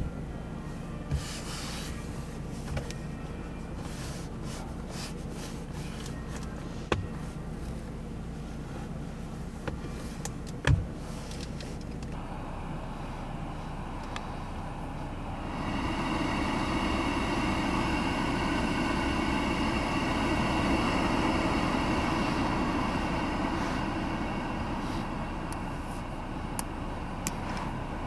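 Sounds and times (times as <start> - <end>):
blower fan with faint whine: 0.0 - 28.0.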